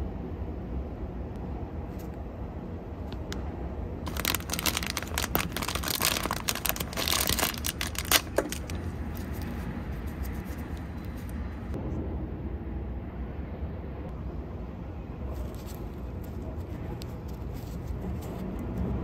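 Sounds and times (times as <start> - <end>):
steady low hum: 0.0 - 19.0
plastic wrapper crinkling and tearing: 4.1 - 11.4.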